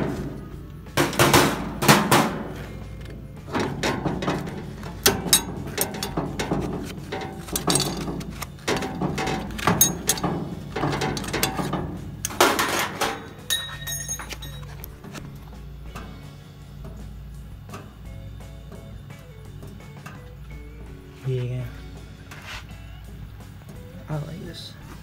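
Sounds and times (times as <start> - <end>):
metal clanks and scrapes: 0.0 - 16.2.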